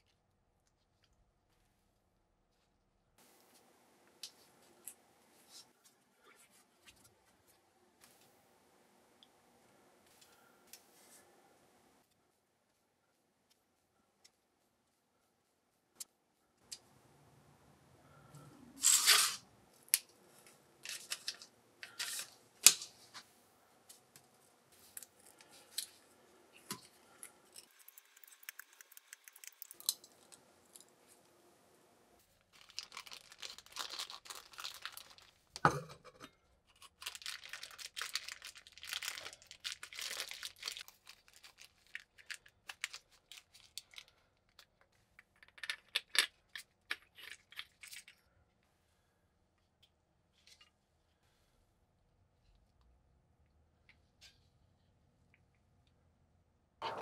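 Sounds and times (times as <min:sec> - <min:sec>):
plastic bag crinkling: 0:32.3 - 0:35.6, 0:36.8 - 0:44.8.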